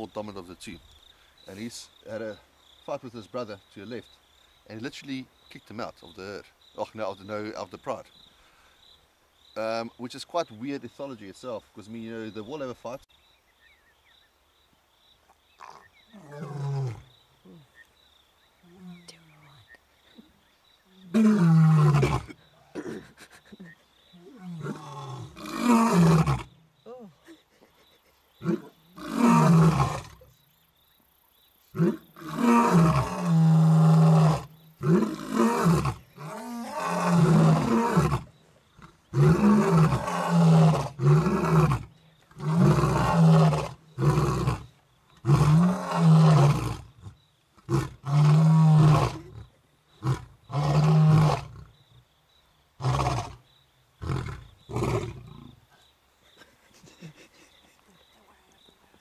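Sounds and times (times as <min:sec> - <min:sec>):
lions roaring: 0:28.4 - 0:30.2, 0:31.8 - 0:47.0, 0:47.6 - 0:51.7.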